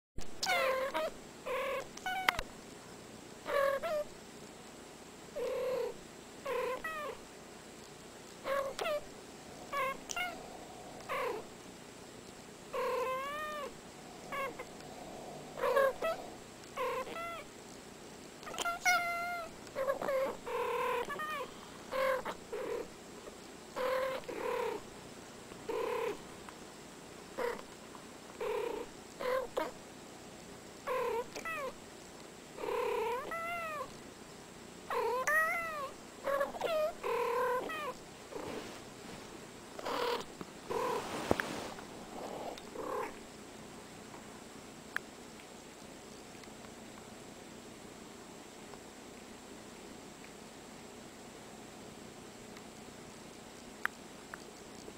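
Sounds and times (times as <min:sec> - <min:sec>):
cats meowing and chirping: 0:00.4 - 0:02.4, 0:03.5 - 0:04.1, 0:05.4 - 0:07.2, 0:08.4 - 0:11.5, 0:12.8 - 0:17.5, 0:18.4 - 0:22.9, 0:30.9 - 0:31.8, 0:33.0 - 0:33.9, 0:35.0 - 0:38.0.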